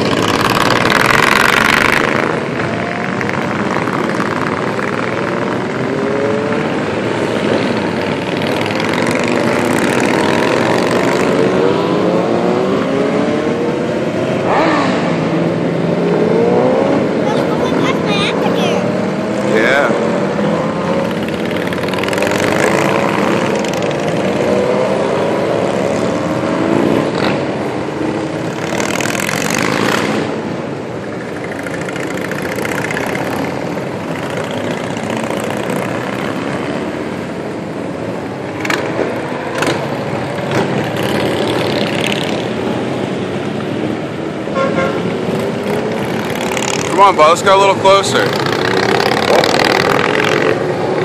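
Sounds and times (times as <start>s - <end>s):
motorcycle engines passing: 0.0s - 51.0s
vehicle horn toots: 44.5s - 45.1s.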